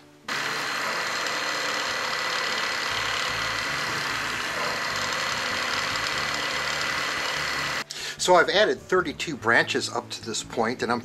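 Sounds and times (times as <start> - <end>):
drill bit boring into wood: 0.3 - 7.8
drill press motor whining: 0.3 - 7.9.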